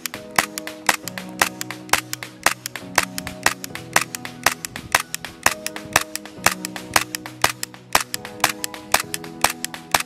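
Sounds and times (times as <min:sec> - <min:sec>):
airsoft gun firing: 0:00.0 - 0:10.0
background music: 0:00.0 - 0:10.0
small mechanical clicks: 0:00.0 - 0:10.0.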